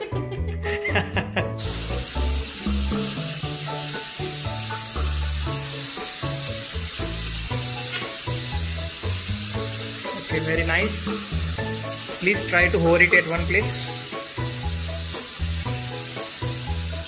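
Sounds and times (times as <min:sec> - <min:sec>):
background music with bass: 0:00.0 - 0:17.0
drone propellers hissing: 0:01.6 - 0:17.0.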